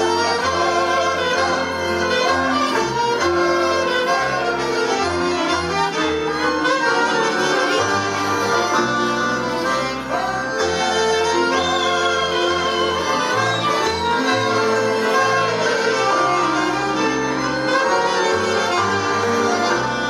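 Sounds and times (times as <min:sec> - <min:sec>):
folk dance band music: 0:00.0 - 0:20.0.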